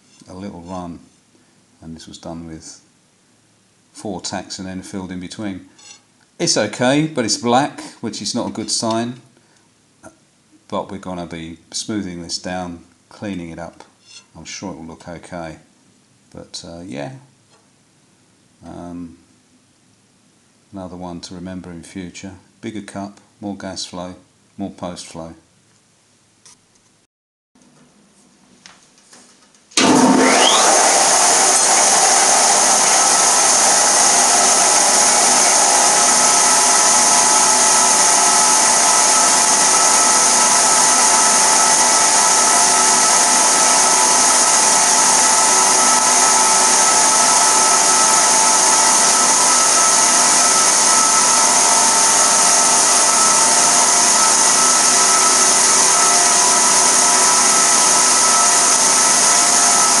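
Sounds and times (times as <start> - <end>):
grinder whining on steel rod: 5.8 - 6.1, 14.0 - 14.3, 29.8 - 60.0.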